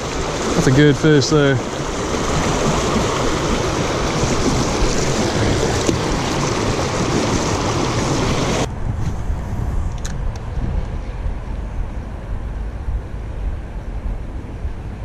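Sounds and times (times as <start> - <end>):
creek water rushing over rocks: 0.0 - 8.7
low rumble: 3.4 - 15.0.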